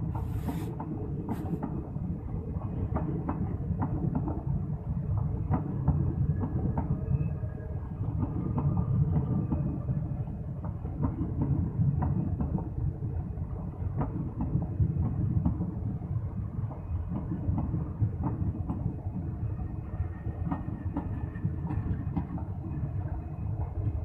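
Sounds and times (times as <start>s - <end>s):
train wheels rumbling on rail: 0.0s - 24.0s.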